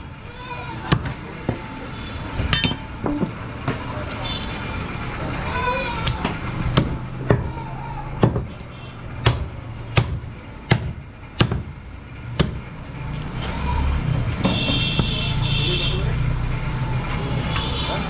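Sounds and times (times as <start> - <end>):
cleaver chopping meat and bone: 0.8 - 1.6, 6.2 - 7.5, 9.2 - 12.7.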